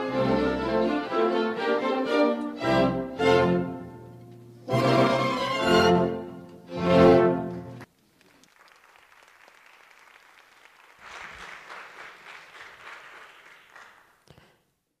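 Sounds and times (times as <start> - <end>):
audience applauding: 7.5 - 14.5.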